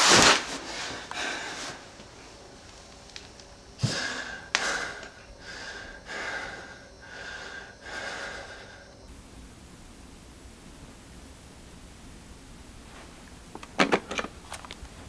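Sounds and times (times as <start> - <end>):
man breathing heavily: 0.6 - 2.5, 3.6 - 9.1.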